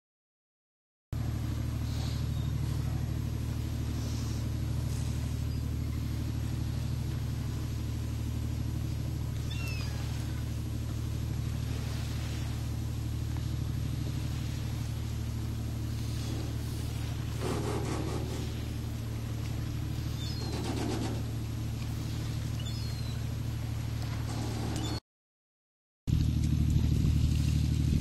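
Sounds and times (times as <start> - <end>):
boat engine low hum: 1.1 - 25.0, 26.1 - 28.0.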